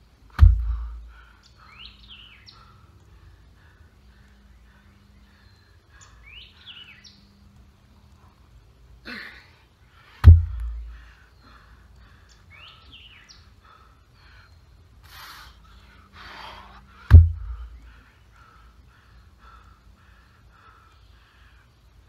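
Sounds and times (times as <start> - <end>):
birds chirping: 0.0 - 22.0
heavy weight thumping on ground: 0.3 - 1.0, 10.2 - 11.0, 17.1 - 17.7
sharp exhale: 15.0 - 17.8.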